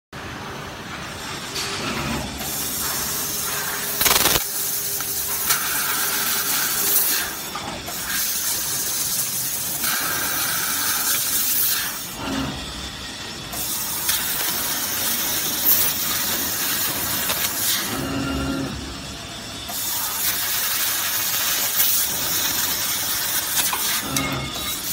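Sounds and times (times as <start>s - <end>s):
laser cutter hissing through metal: 2.4s - 24.9s
sharp burst of laser cutter: 2.5s - 7.4s.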